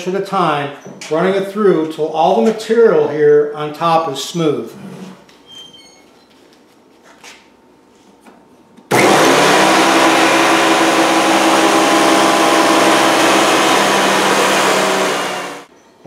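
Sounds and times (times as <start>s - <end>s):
thickness planer motor whine: 8.9s - 15.7s.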